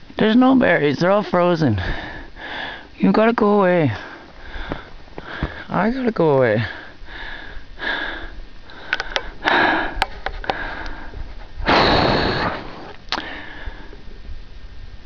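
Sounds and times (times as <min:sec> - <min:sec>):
noisy breathing and sniffing: 0:06.6 - 0:14.0
faint clicks: 0:08.6 - 0:09.3.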